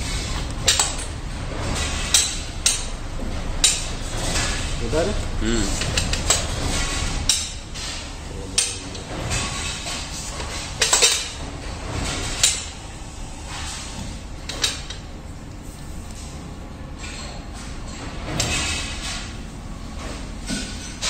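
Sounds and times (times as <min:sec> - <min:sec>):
metal machine clanks and knocks: 0:00.0 - 0:05.2, 0:05.8 - 0:12.8, 0:17.0 - 0:19.4.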